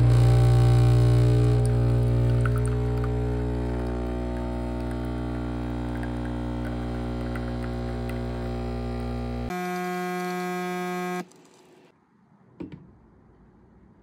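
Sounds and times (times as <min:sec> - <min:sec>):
espresso machine pump humming: 0:00.0 - 0:11.6.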